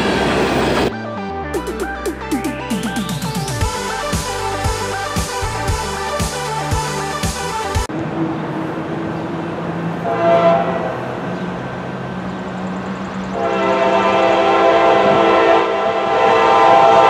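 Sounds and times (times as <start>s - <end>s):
locomotive horn chord blasts: 10.0s - 11.2s, 13.3s - 17.0s.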